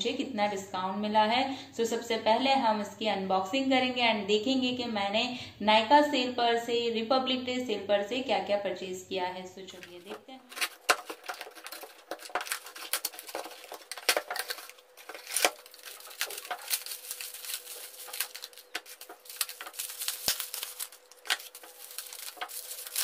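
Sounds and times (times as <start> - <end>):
bubble wrap crinkling: 9.8 - 23.0
packing tape tearing: 9.8 - 23.0
scissors cutting cardboard: 10.0 - 23.0.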